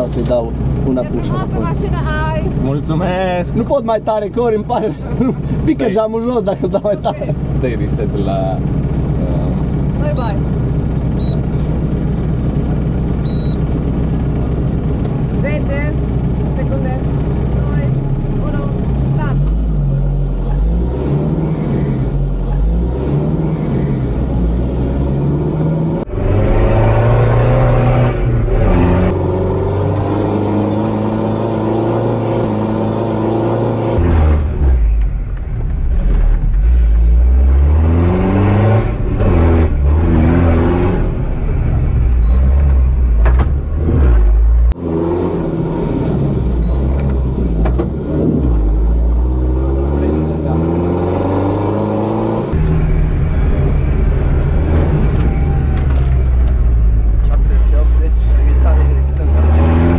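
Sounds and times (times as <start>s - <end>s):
engine revving inside cabin: 17.7s - 59.9s.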